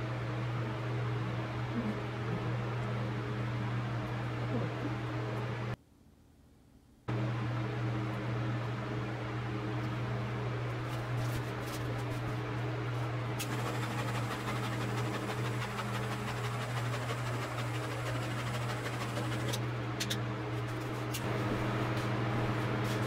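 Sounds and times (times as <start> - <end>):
electric motor hum: 13.4 - 19.8.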